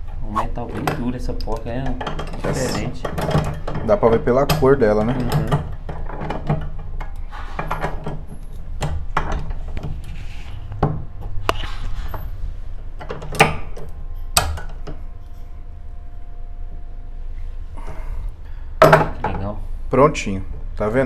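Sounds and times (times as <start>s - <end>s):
low hum: 8.2s - 21.0s.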